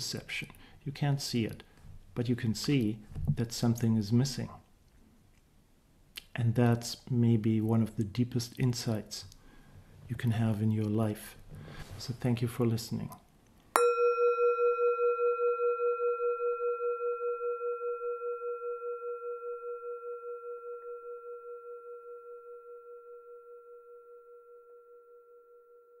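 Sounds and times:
singing bowl ringing: 0:13.8 - 0:26.0.

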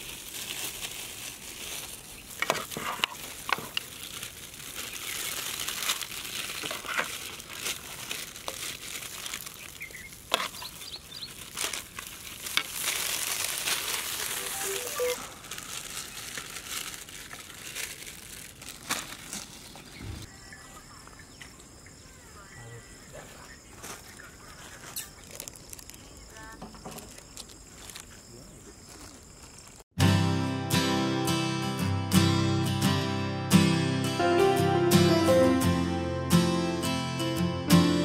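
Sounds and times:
foil pouches crinkling: 0:00.0 - 0:20.1, 0:23.8 - 0:29.9.

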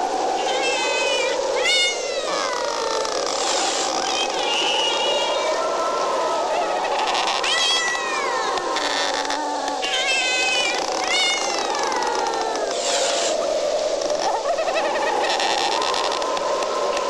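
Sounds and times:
cat meowing: 0:00.4 - 0:03.1, 0:04.0 - 0:05.6, 0:06.7 - 0:12.6.

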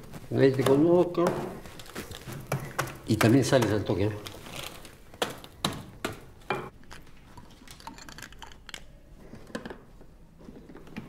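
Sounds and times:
small objects clicking and tapping: 0:05.1 - 0:10.0.

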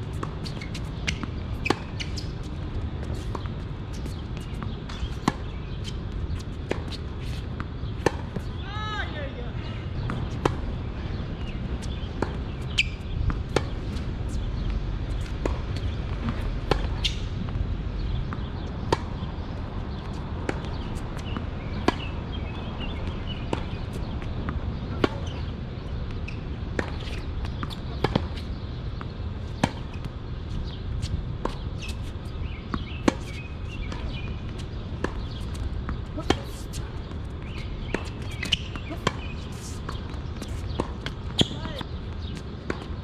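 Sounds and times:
tennis balls hit with racquets: 0:11.8 - 0:19.3, 0:20.0 - 0:43.0.

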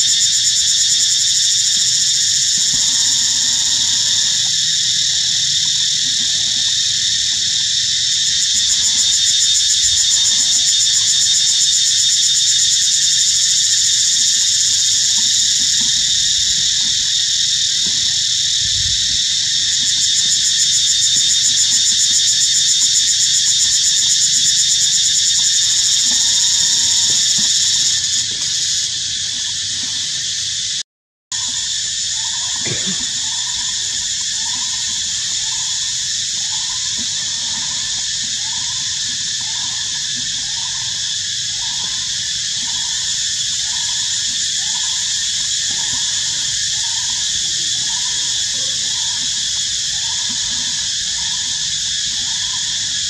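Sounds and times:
insect chorus buzzing: 0:00.0 - 0:30.8, 0:31.4 - 0:53.0.

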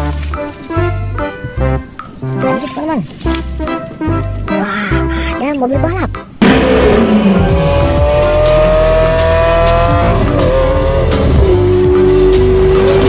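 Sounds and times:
music with heavy bass beat: 0:05.9 - 0:13.0
sports car engine accelerating: 0:06.4 - 0:13.0.

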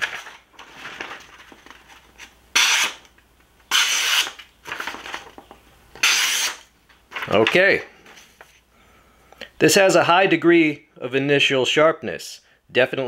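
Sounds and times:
paper rustling: 0:00.0 - 0:02.4, 0:04.6 - 0:05.6.

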